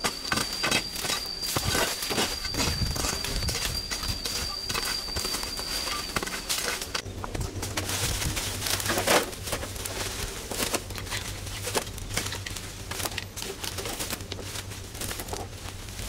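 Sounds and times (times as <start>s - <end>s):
rustling and crackling: 1.6s - 16.0s.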